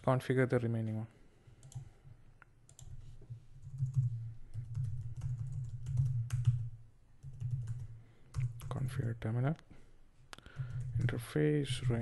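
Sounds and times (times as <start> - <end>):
typing on computer keyboard: 1.6 - 1.9, 2.7 - 3.0, 3.6 - 9.1, 10.5 - 11.2.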